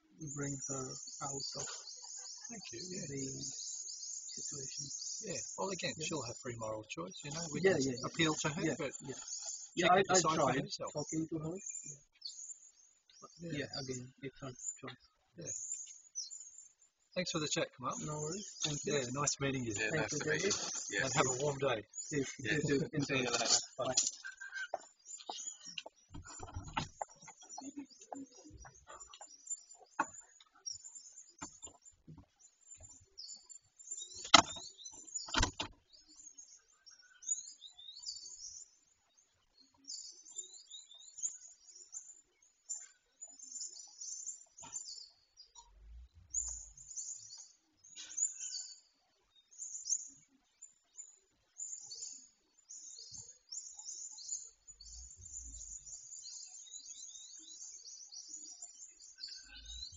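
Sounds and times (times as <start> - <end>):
small birds chirping: 0.0 - 59.9
sharp knocks: 34.2 - 34.6, 35.3 - 35.8.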